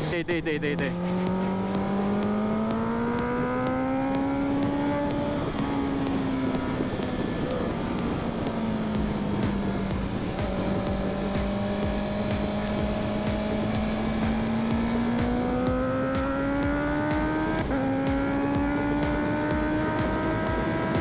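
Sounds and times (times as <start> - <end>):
motorcycle engine accelerating: 0.0 - 21.0
wind noise: 1.1 - 14.4.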